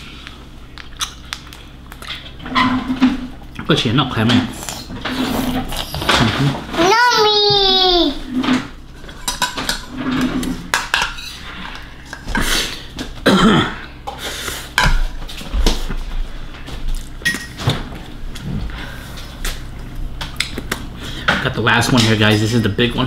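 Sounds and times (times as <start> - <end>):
bowls and cutlery clinking: 9.0 - 12.2.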